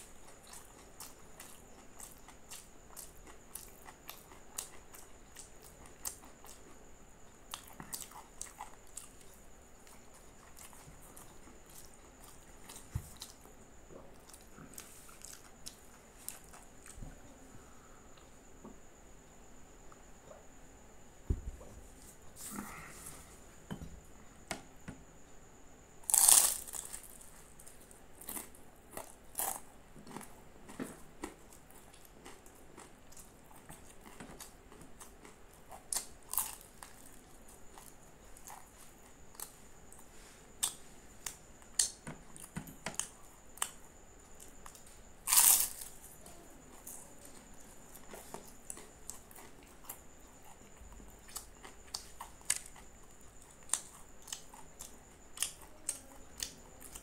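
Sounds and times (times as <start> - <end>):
crispy pastry crunching: 26.0 - 30.3, 31.2 - 39.5, 44.6 - 46.0.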